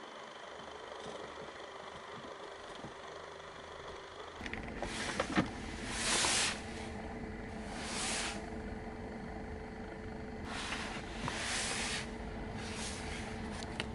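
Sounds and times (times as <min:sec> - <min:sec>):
steady low hum: 0:00.0 - 0:13.9
tyre hiss on wet road: 0:05.8 - 0:06.8, 0:07.6 - 0:08.5, 0:10.4 - 0:13.2.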